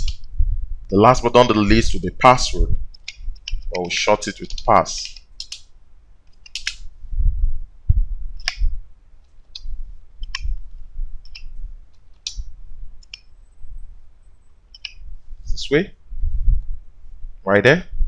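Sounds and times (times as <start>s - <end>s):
keyboard keystrokes: 2.9s - 5.7s, 6.3s - 6.8s
low thumps: 7.0s - 8.9s, 16.1s - 16.9s.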